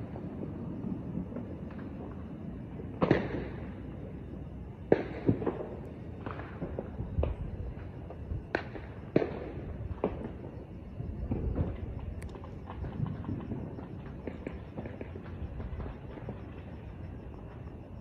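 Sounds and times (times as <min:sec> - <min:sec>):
fireworks bangs: 0:02.9 - 0:03.8, 0:04.8 - 0:17.8.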